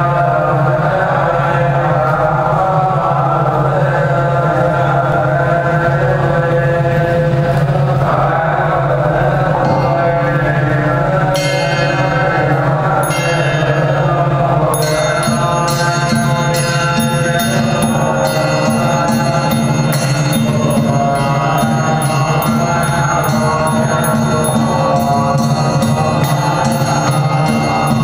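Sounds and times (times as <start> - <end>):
low drone: 0.0 - 28.0
ritual chanting: 0.0 - 28.0
metallic percussion strikes: 9.4 - 28.0.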